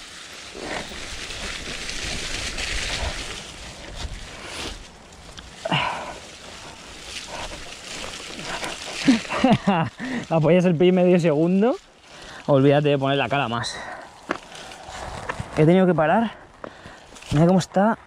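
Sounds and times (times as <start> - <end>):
tyres rolling through mud: 0.0 - 18.0
wind rushing on camera: 0.6 - 9.0, 14.7 - 15.6.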